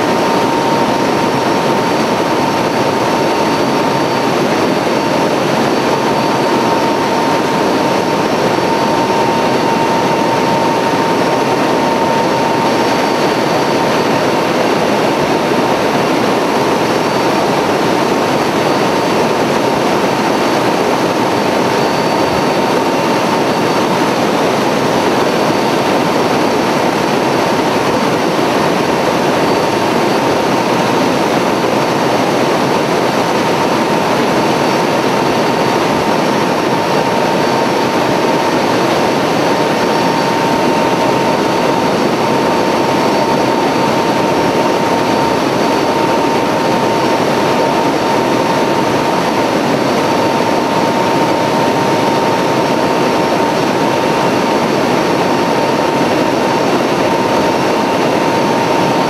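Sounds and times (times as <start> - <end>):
aircraft engines from cabin: 0.0 - 27.2.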